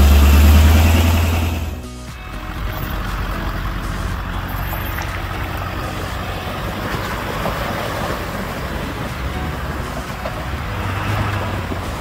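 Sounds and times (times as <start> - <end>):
diesel van engine running: 0.0 - 12.0
water splashing around tires: 2.6 - 12.0.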